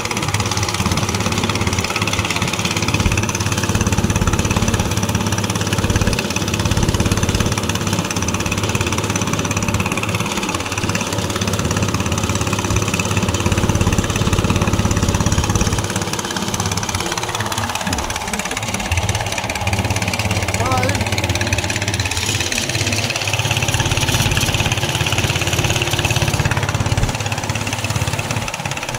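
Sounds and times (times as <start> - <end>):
boat engine droning: 0.0 - 28.9.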